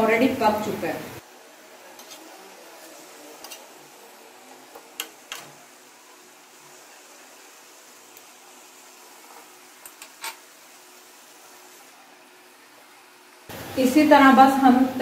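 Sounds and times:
faint steady hiss: 0:00.0 - 0:15.0
metal spatula scraping on griddle: 0:01.9 - 0:03.9, 0:09.0 - 0:10.5.

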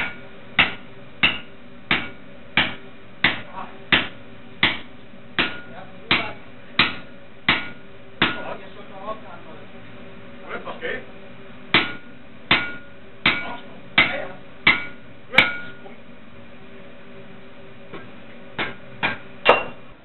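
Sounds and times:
hammer striking punch on hot steel: 0:00.0 - 0:08.5, 0:11.7 - 0:15.8, 0:18.6 - 0:19.8.

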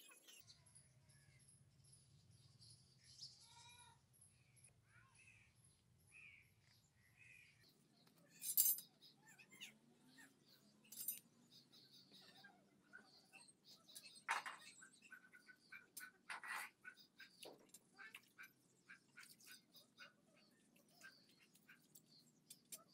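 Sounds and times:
birds chirping: 0:04.6 - 0:22.9.

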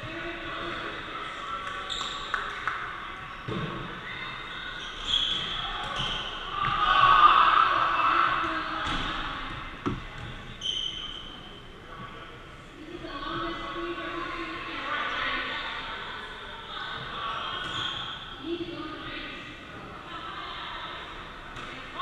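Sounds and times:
people shouting in echoing hall: 0:05.6 - 0:08.8.

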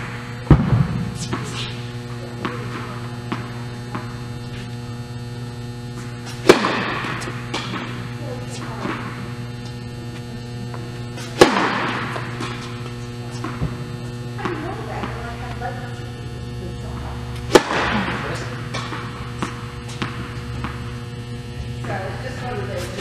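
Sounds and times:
indoor hall hum: 0:00.0 - 0:23.0
tennis racket hitting ball: 0:00.5 - 0:04.2, 0:06.0 - 0:09.2, 0:11.2 - 0:13.8, 0:14.4 - 0:15.9, 0:17.4 - 0:21.0.

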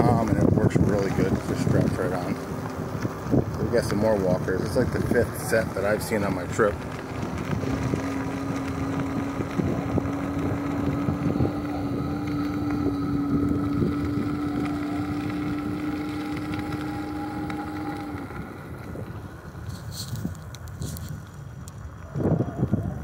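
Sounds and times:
electric hub motor whining: 0:00.0 - 0:23.0
tyre rumble on asphalt: 0:00.0 - 0:23.0
wind noise on microphone: 0:00.0 - 0:23.0.

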